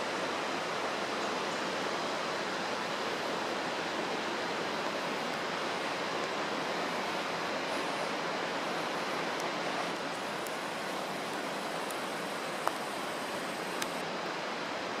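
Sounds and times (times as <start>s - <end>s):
faint clicks: 12.6s - 12.9s, 13.6s - 14.0s.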